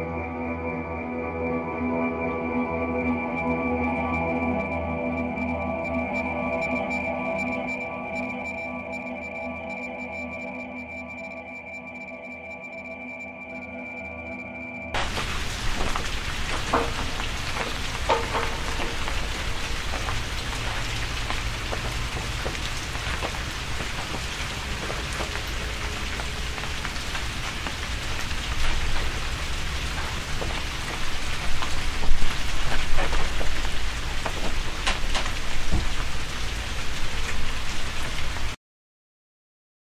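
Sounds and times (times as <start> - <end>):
rain-like patter: 15.0 - 38.6.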